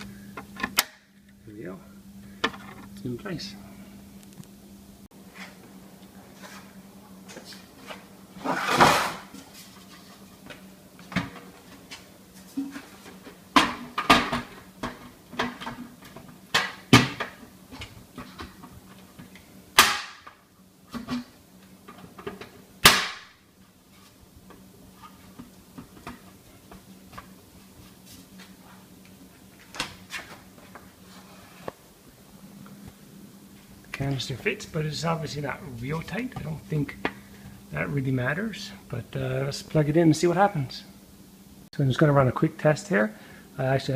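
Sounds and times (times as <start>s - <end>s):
metal canister clunks and scrapes: 8.4s - 9.4s.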